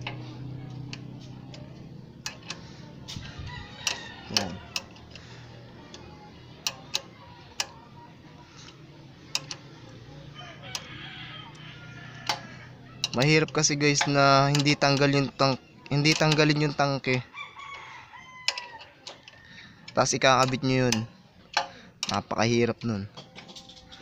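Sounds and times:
wrench clicking against bolt: 0:00.9 - 0:02.6, 0:03.5 - 0:05.3, 0:05.9 - 0:07.8, 0:08.6 - 0:09.7, 0:12.2 - 0:16.9, 0:18.4 - 0:24.0
rooster crowing: 0:03.2 - 0:05.1, 0:10.3 - 0:12.9, 0:17.2 - 0:19.8.

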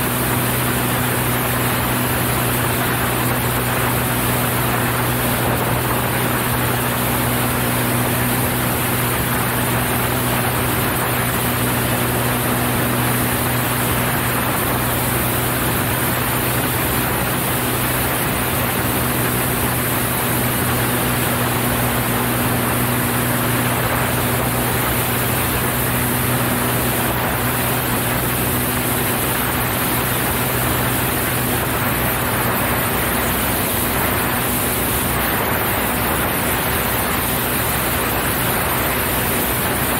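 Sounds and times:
propeller plane engine droning: 0:00.0 - 0:39.9
rush of airflow: 0:00.0 - 0:39.9.

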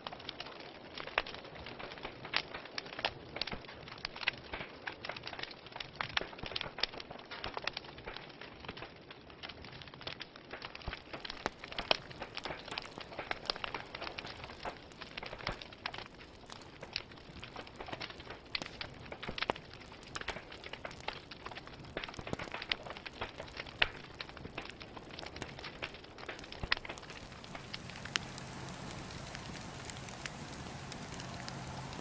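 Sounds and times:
fire crackling and popping: 0:00.0 - 0:32.0
hissing flames: 0:10.8 - 0:32.0.

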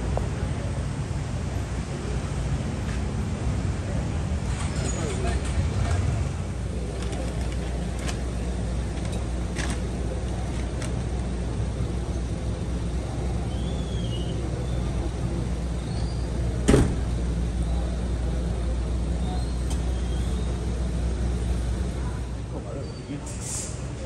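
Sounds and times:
van engine idling: 0:00.0 - 0:22.8
van hatch slamming: 0:16.6 - 0:17.1.

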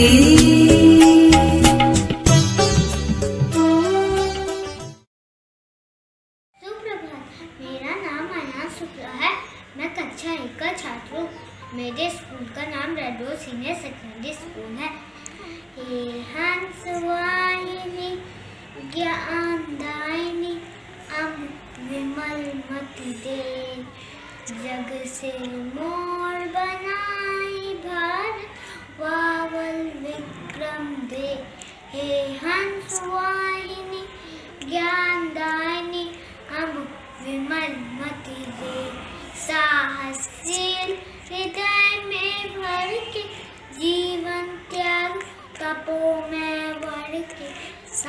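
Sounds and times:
boy singing: 0:00.0 - 0:02.4, 0:15.8 - 0:48.0
short breaths: 0:15.1 - 0:15.8, 0:23.9 - 0:24.5, 0:28.5 - 0:29.0, 0:34.1 - 0:34.6.

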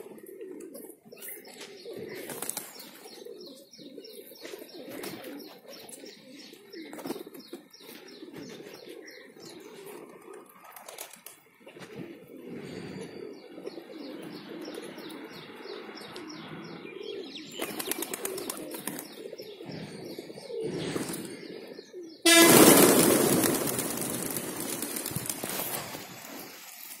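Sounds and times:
pigeons cooing: 0:00.0 - 0:27.0
loud rushing noise: 0:22.3 - 0:26.5
wing flaps: 0:22.3 - 0:27.0.

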